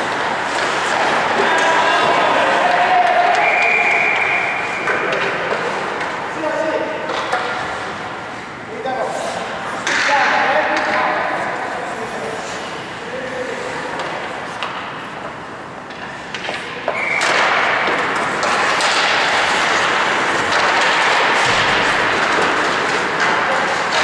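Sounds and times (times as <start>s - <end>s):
skate blades scraping ice: 0.0s - 2.8s, 16.1s - 24.0s
stick and puck clacks: 0.0s - 6.2s, 6.9s - 8.0s, 9.8s - 11.7s, 13.9s - 24.0s
echoing rink noise: 0.0s - 24.0s.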